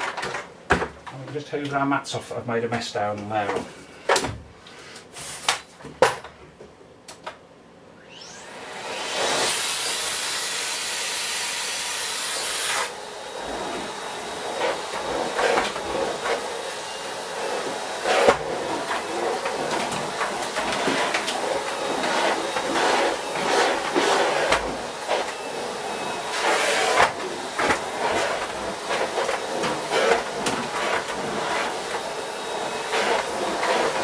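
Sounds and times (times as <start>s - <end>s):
vacuum cleaner motor: 8.0s - 34.0s.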